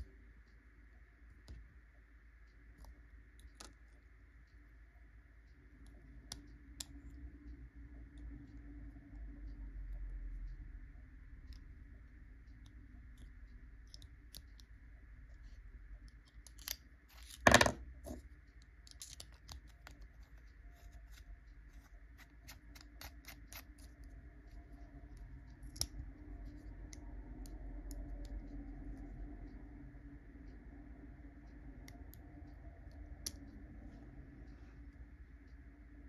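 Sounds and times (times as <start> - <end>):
mechanical pencil parts clicking: 16.2 - 17.5, 18.8 - 19.8.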